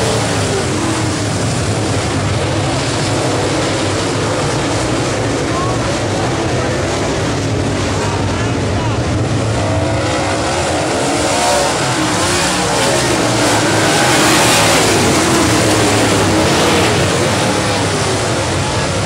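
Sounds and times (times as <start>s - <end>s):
race car engines racing: 0.0s - 19.0s.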